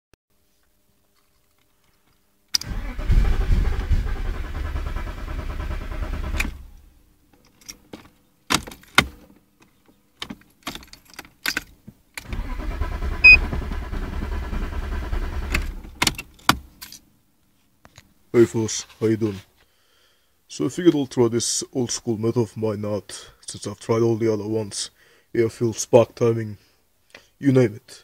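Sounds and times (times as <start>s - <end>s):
engine cranking on starter: 2.6s - 6.8s, 12.2s - 16.2s.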